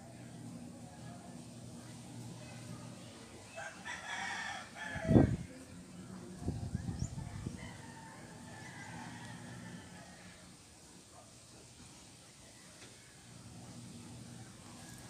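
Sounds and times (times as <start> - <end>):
rooster crowing: 3.6 - 5.4, 7.4 - 10.5.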